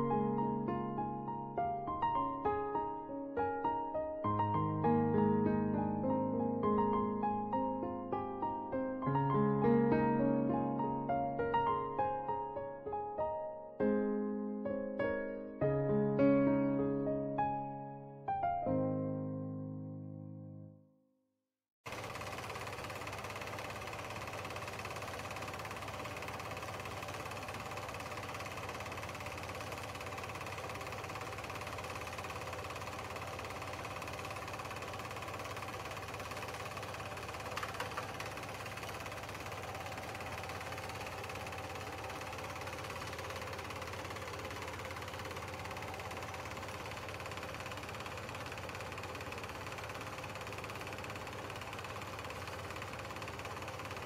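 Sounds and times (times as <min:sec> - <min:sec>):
film projector whirring: 0:21.9 - 0:54.0
projector clicks: 0:37.3 - 0:39.0.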